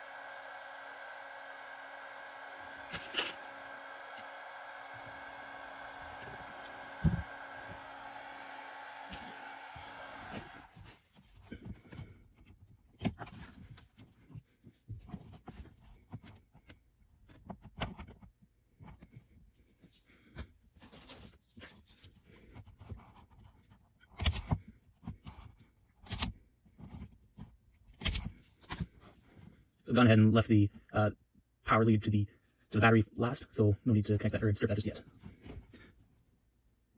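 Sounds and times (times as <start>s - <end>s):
wires rustling: 2.0s - 10.9s
clicks and snips of wire tools: 28.0s - 28.3s.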